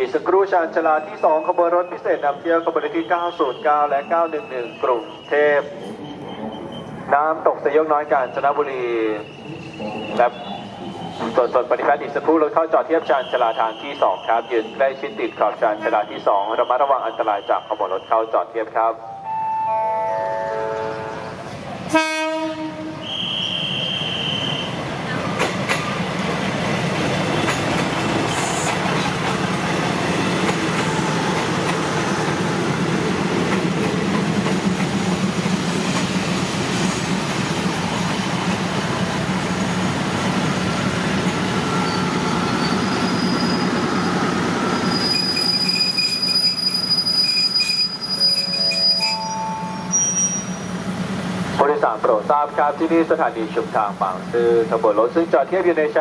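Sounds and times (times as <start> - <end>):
train engines and wheels rumbling: 0.0 - 56.0
train horn blast: 21.9 - 24.6
brakes squealing: 41.4 - 50.8.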